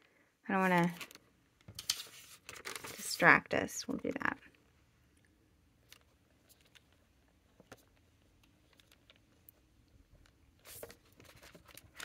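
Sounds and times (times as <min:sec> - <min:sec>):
paper rustling: 0:00.6 - 0:03.3, 0:10.2 - 0:12.0.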